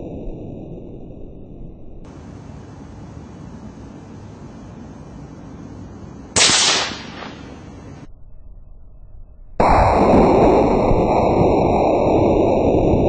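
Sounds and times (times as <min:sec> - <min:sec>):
loud steady noise: 0:02.1 - 0:08.1
rifle shot: 0:06.4 - 0:07.9.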